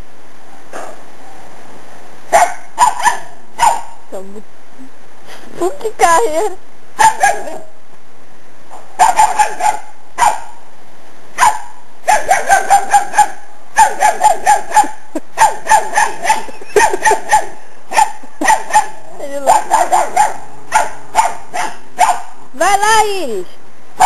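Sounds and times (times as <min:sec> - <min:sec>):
dogs barking: 0:02.3 - 0:04.0, 0:07.0 - 0:07.7, 0:08.7 - 0:10.6, 0:11.4 - 0:22.4.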